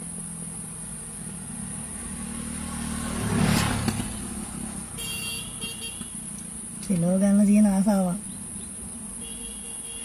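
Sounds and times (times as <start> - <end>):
vehicle engine passing: 0.0 - 5.6
insects buzzing: 0.0 - 10.0.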